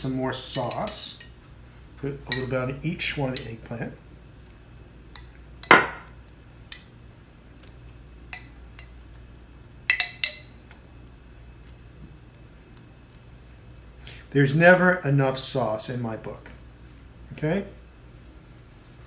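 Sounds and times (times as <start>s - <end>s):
low steady hum: 0.0s - 19.0s
spoon clinking against glass dish: 9.9s - 10.6s.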